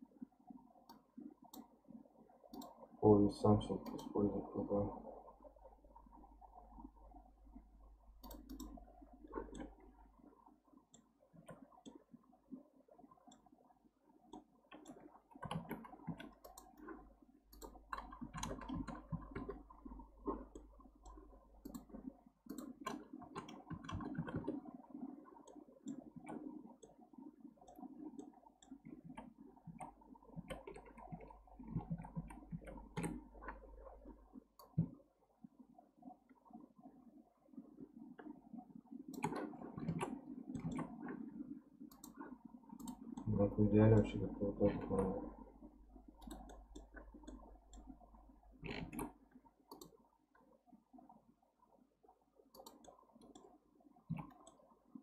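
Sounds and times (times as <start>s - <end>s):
low steady hum: 0.0s - 55.0s
computer mouse clicking: 0.9s - 1.7s, 2.5s - 2.8s, 3.7s - 4.2s, 8.2s - 10.0s, 14.3s - 24.7s, 25.4s - 35.0s, 39.1s - 45.2s, 46.1s - 50.0s, 52.5s - 54.6s.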